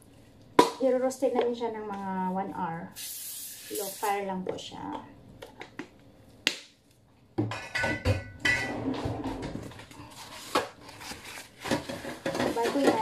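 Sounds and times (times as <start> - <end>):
metal kitchenware clattering: 7.5 - 10.6, 11.6 - 13.0.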